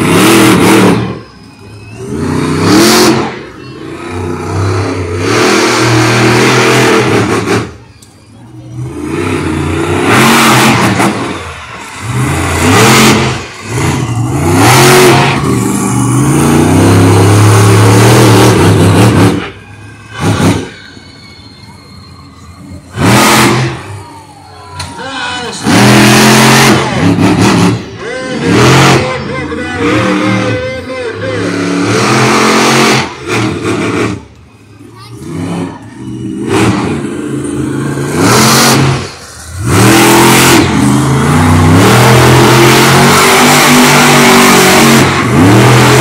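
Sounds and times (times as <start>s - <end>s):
truck engine revving: 0.0s - 46.0s.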